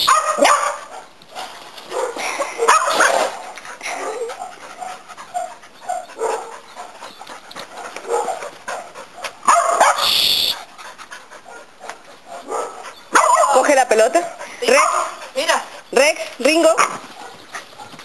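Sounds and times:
dogs panting: 0:00.9 - 0:10.0, 0:10.6 - 0:18.0
loud sharp sound: 0:10.0 - 0:10.6.

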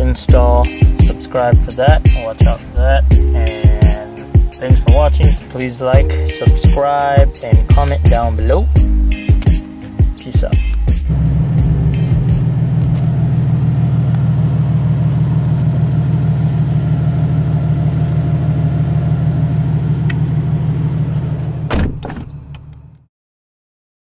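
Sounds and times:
car engine idling: 0:00.0 - 0:09.2, 0:09.8 - 0:23.0
thump: 0:21.7 - 0:22.6.

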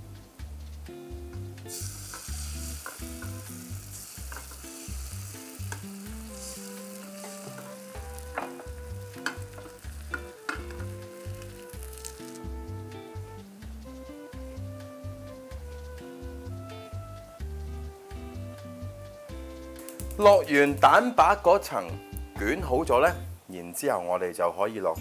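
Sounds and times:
egg white sizzling in pan: 0:01.6 - 0:14.6, 0:19.6 - 0:21.0.

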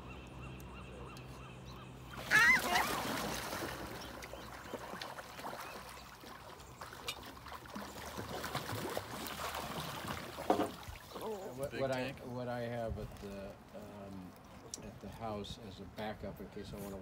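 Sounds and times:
gulls calling: 0:00.0 - 0:07.2
wings flapping on water: 0:02.1 - 0:11.3.

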